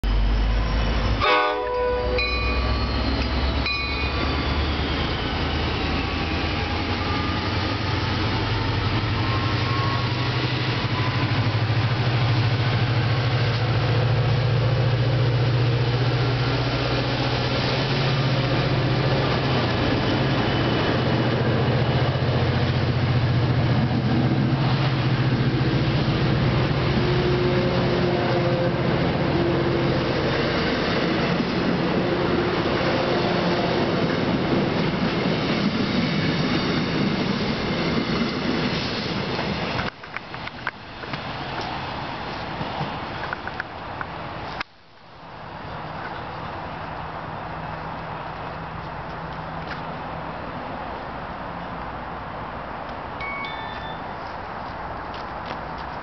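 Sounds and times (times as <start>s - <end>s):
locomotive engine drone: 0.0s - 44.6s
train horn blasts: 1.2s - 3.4s, 27.0s - 30.0s.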